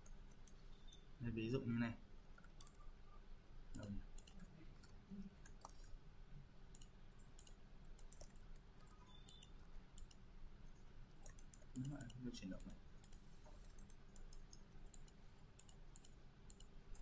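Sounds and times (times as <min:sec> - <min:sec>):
computer mouse clicks: 0:00.0 - 0:01.1, 0:02.3 - 0:02.9, 0:03.7 - 0:06.0, 0:06.7 - 0:10.3, 0:11.1 - 0:17.0
low steady hum: 0:00.0 - 0:17.0.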